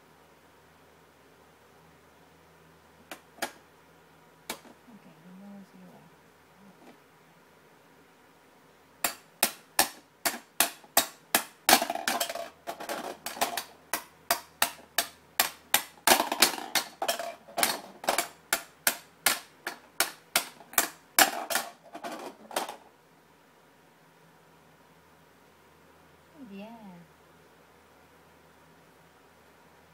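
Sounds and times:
toy hammer banging on plastic: 0:09.0 - 0:22.8.

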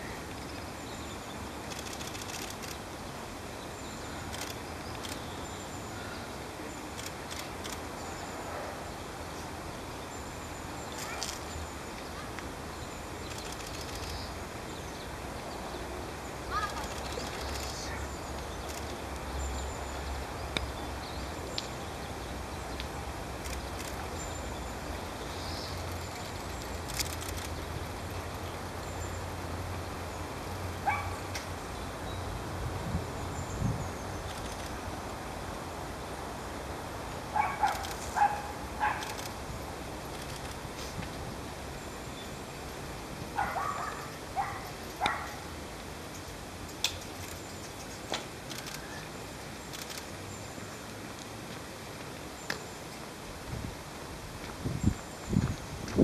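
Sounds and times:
outdoor background noise: 0:00.0 - 0:56.0
faint high bird calls: 0:10.6 - 0:14.4, 0:15.8 - 0:19.0
sharp clicks: 0:13.3 - 0:14.3, 0:25.8 - 0:27.6.

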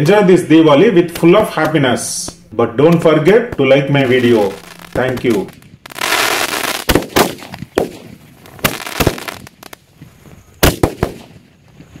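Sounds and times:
firework bangs with ringing tail: 0:00.8 - 0:09.5.

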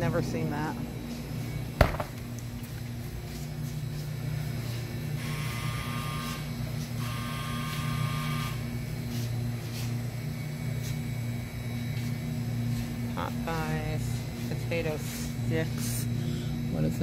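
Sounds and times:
freezer hum: 0:00.0 - 0:17.0
freezer door thump: 0:01.8 - 0:02.2.

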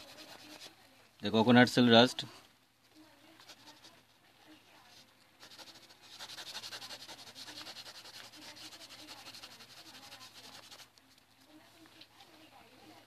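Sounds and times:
fibre scratching on paper: 0:00.0 - 0:00.8, 0:03.2 - 0:04.1, 0:04.8 - 0:11.6.

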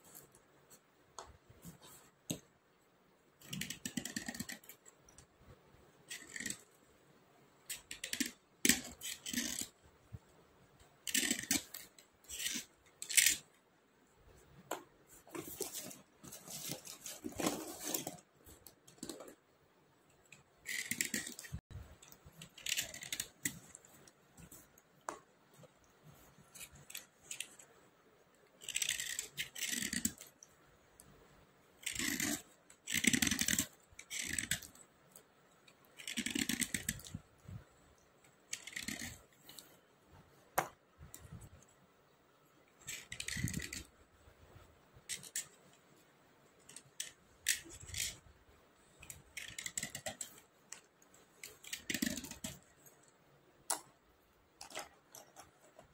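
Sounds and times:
slate pencils scraping: 0:06.0 - 0:06.8, 0:07.7 - 0:09.8, 0:11.0 - 0:13.5, 0:15.1 - 0:19.4, 0:20.3 - 0:24.7, 0:28.6 - 0:30.4, 0:31.8 - 0:34.8, 0:35.9 - 0:37.2, 0:38.5 - 0:39.8, 0:42.8 - 0:44.0, 0:45.0 - 0:45.7, 0:46.6 - 0:48.2, 0:48.9 - 0:53.1
pencils clicking together: 0:20.6 - 0:24.1, 0:28.6 - 0:30.4, 0:36.0 - 0:37.2, 0:49.0 - 0:52.7.

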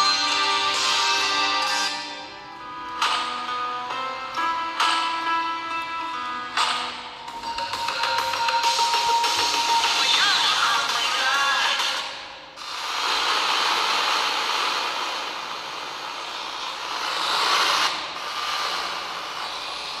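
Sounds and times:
radio static hiss: 0:12.6 - 0:20.0.

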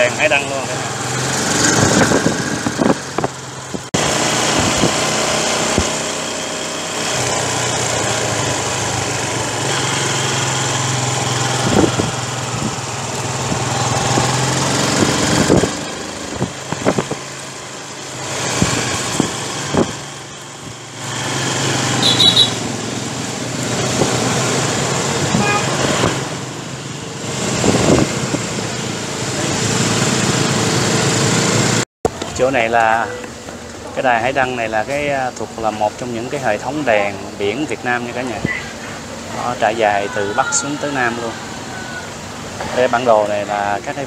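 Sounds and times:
motorbike engine running: 0:00.0 - 0:32.3
road and wind noise: 0:00.0 - 0:44.0.

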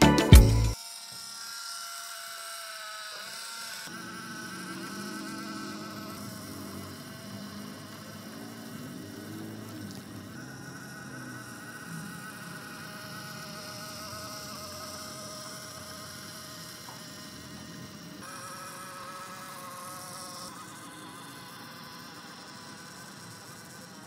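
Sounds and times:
toy truck motor whining: 0:00.0 - 0:24.0.

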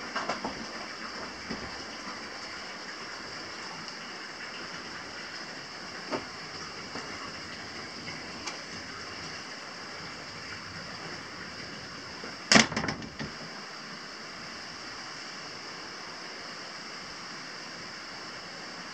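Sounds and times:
flowing water: 0:00.0 - 0:18.9
steady hissing noise: 0:00.0 - 0:18.9
clatter of sharp knocks: 0:12.5 - 0:13.4.

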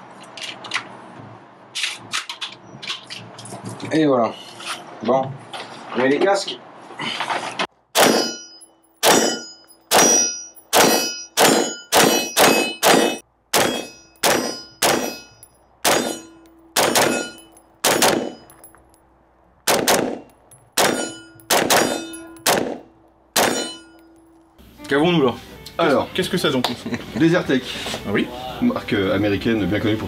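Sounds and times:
rifle shots cracking with echo: 0:08.0 - 0:08.4, 0:09.0 - 0:15.2, 0:16.8 - 0:18.5, 0:19.7 - 0:22.8, 0:23.4 - 0:23.7.

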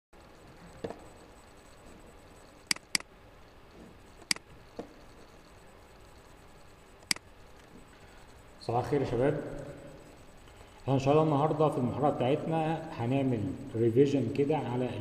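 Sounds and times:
computer mouse clicks: 0:02.7 - 0:03.1.

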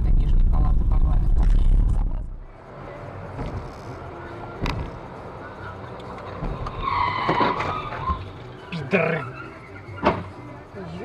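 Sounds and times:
car road and engine noise: 0:00.0 - 0:11.0
tyres screeching: 0:03.4 - 0:10.6.

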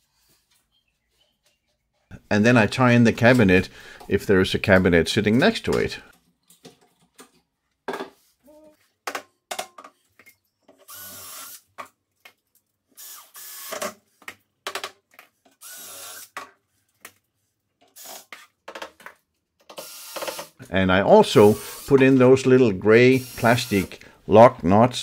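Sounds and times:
cordless drill driving screws: 0:10.8 - 0:11.7, 0:13.0 - 0:13.9, 0:15.6 - 0:16.4, 0:18.0 - 0:18.4, 0:19.7 - 0:20.6, 0:21.4 - 0:22.1, 0:23.1 - 0:24.0.

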